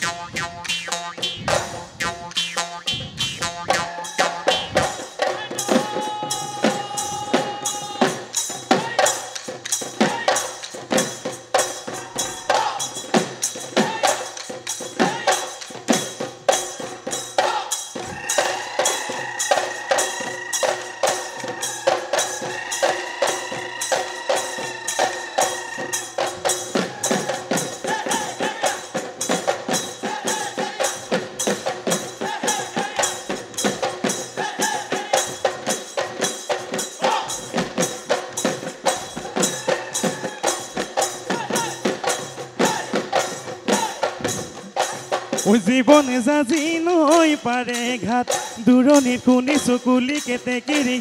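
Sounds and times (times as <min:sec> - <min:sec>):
folk melody: 0:00.0 - 0:05.0
fast dhol drumming: 0:00.0 - 0:51.0.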